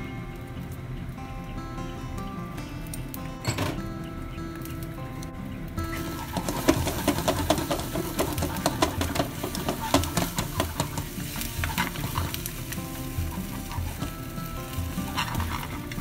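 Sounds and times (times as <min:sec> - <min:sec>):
chopsticks clicking against pan: 0:04.6 - 0:16.0
egg sizzling in pan: 0:05.7 - 0:16.0.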